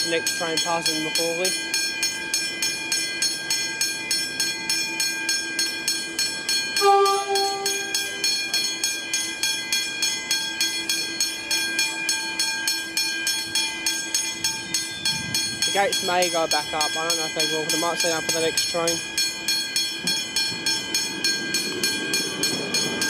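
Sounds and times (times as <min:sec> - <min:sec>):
level-crossing warning bell: 0:00.0 - 0:23.0
short horn blast: 0:06.8 - 0:07.9.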